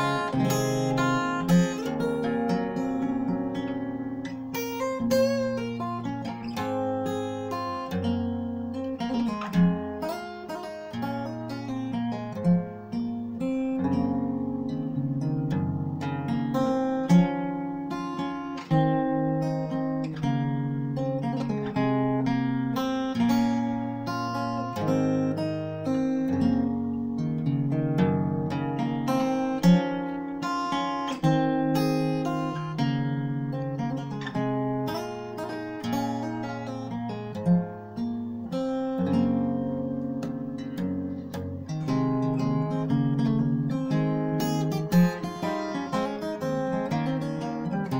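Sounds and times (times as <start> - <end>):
fingerstyle acoustic guitar: 0.0 - 47.9.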